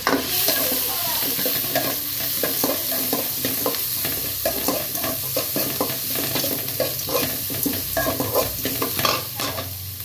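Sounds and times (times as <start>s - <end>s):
metal spatula scraping a pan: 0.0s - 9.8s
food sizzling in hot oil: 0.0s - 10.0s.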